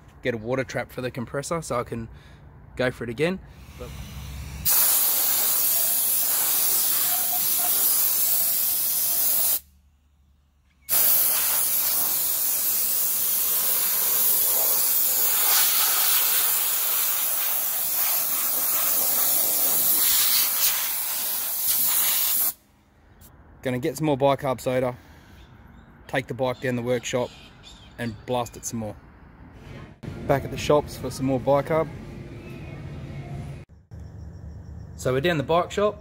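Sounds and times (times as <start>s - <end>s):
soda blaster spraying hiss: 3.6s - 9.6s, 10.9s - 22.6s.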